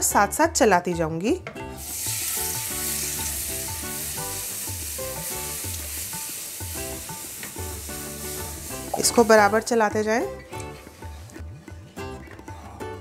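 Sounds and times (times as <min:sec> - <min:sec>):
soft background music: 0:00.0 - 0:13.0
milk sizzling in hot pan: 0:01.7 - 0:09.7.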